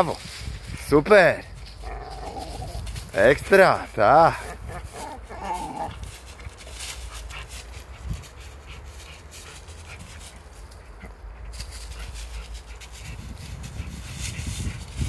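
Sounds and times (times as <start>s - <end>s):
paws scuffing dry leaves: 0.0s - 15.0s.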